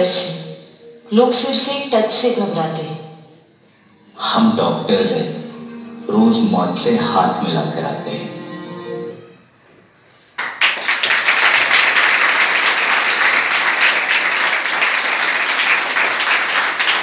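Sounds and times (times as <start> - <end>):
music: 0.0 - 10.2
audience applauding: 10.3 - 17.0.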